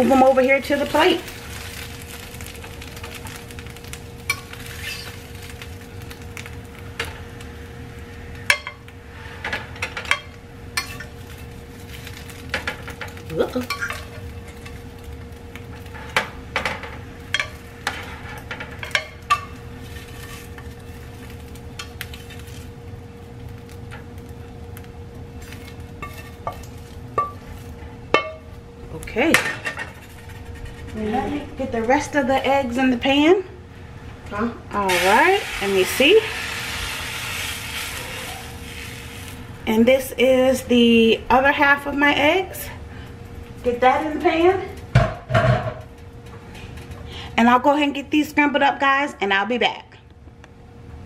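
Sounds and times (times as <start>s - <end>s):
steady hum: 0.0s - 51.0s
spatula scraping a frying pan: 4.3s - 5.4s, 17.4s - 21.2s, 25.4s - 27.3s, 29.6s - 31.4s.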